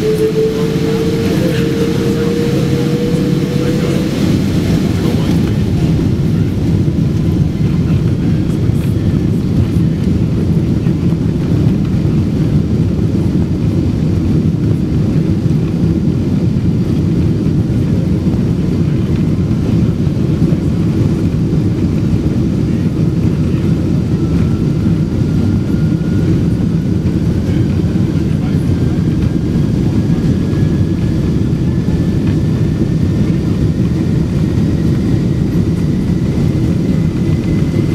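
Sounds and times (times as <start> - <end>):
airliner cabin engine rumble: 0.0 - 37.9.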